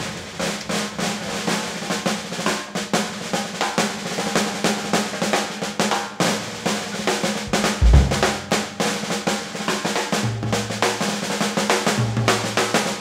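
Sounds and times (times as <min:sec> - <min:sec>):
snare drum rolls and rimshots: 0:00.4 - 0:13.0
bass drum: 0:07.4 - 0:08.7
held low note: 0:07.5 - 0:08.6.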